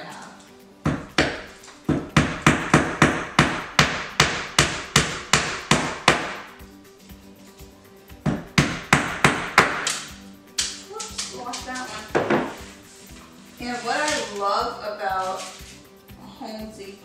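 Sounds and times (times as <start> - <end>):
hammer striking nails: 0.9 - 6.5, 8.3 - 12.6.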